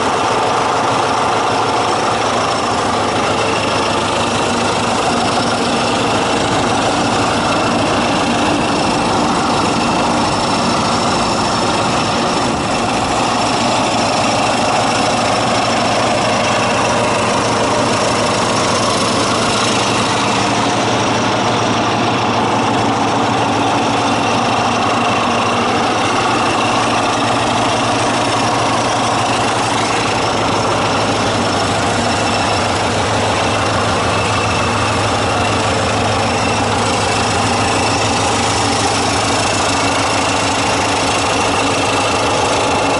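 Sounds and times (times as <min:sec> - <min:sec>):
diesel engine idling: 0:00.0 - 0:42.9.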